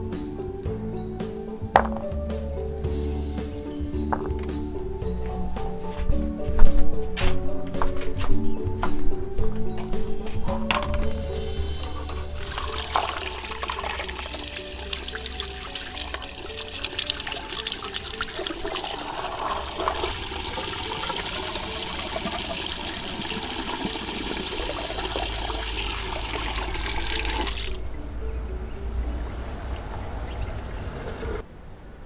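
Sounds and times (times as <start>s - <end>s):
water splashing into a basin: 12.4s - 28.1s.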